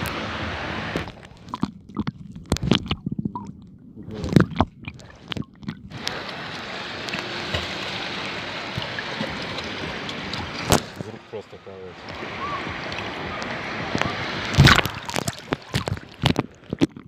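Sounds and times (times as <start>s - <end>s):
sea water sloshing and gurgling: 0.0s - 17.0s
hiss of sea and wind: 5.9s - 15.0s.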